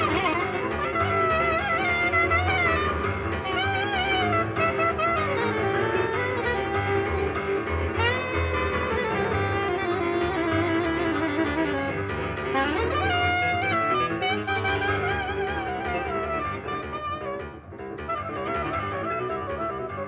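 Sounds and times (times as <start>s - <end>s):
piano: 0.0s - 20.0s
saxophone: 0.0s - 20.0s.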